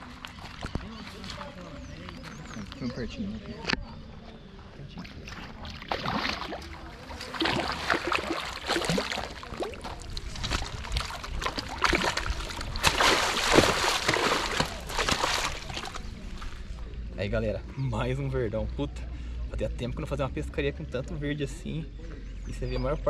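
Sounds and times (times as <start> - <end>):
fish thrashing and splashing: 5.2 - 16.8.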